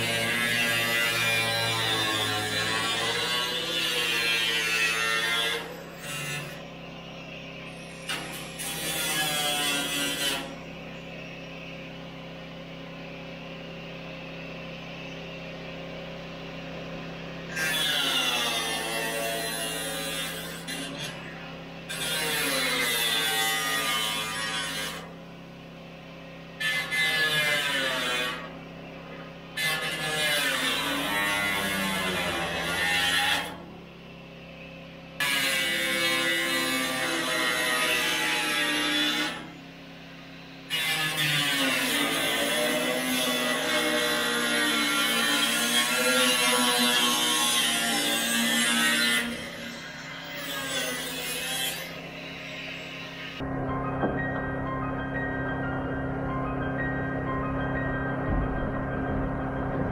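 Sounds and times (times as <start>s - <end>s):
power tool running: 0.0s - 11.0s, 15.7s - 34.6s, 35.2s - 59.9s
steady low hum: 0.0s - 26.9s, 51.2s - 59.9s.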